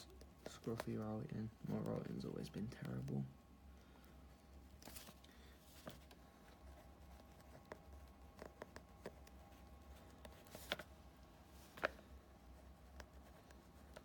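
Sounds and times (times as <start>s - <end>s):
low steady hum: 0.0s - 14.0s
pen writing on paper: 6.6s - 10.8s.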